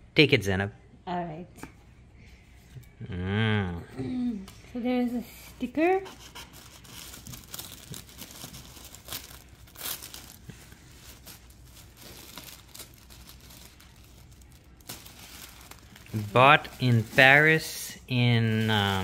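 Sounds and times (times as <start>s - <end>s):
tissue paper crinkling: 6.1s - 19.0s.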